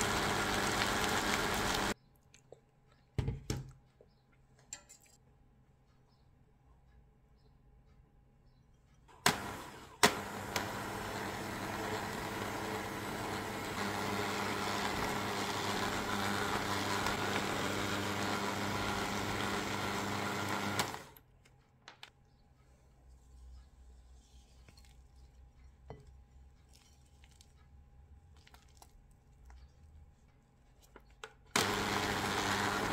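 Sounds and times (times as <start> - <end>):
electric hand mixer whirring: 0.0 - 2.0, 9.2 - 21.2, 31.5 - 32.9.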